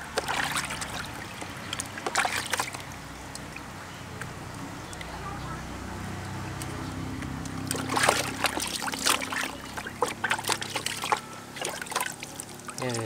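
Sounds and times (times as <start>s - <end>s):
water splashing in plastic basin: 0.0s - 3.8s, 7.4s - 13.0s.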